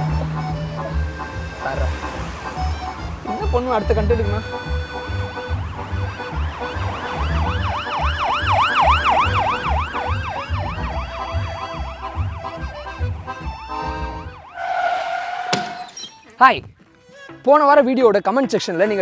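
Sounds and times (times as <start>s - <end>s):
ambulance siren: 4.3s - 15.9s.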